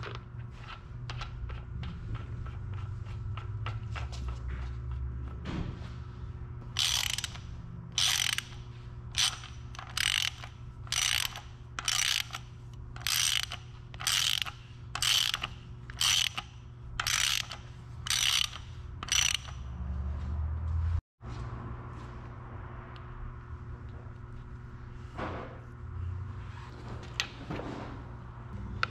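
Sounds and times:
steady low hum: 0.0 - 28.9
ratchet wrench clicking: 6.7 - 19.8.

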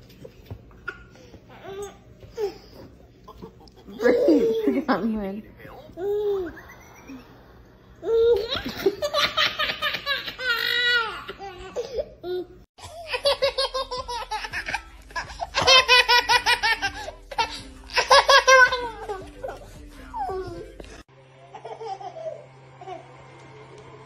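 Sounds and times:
baby laughing: 6.0 - 7.4, 8.0 - 23.0.

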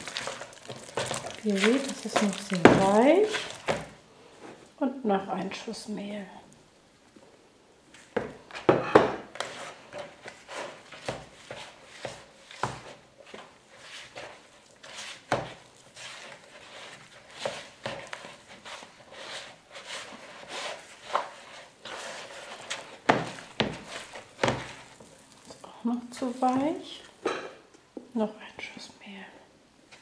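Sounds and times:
hand kneading dough in bowl: 0.0 - 4.0, 9.2 - 27.2.

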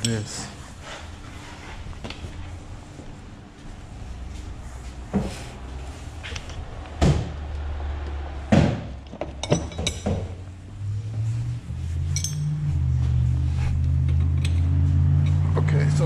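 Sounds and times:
metal wrenches clinking: 9.1 - 10.4, 12.0 - 12.7.

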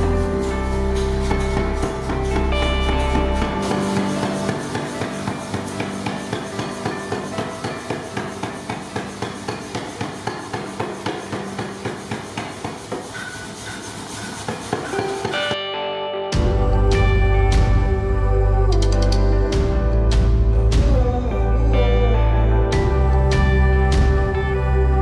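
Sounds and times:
power hammer striking iron: 0.9 - 15.6.

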